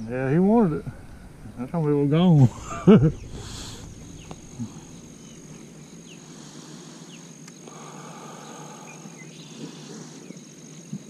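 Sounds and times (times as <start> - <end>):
low rumbling noise: 0.0 - 8.6.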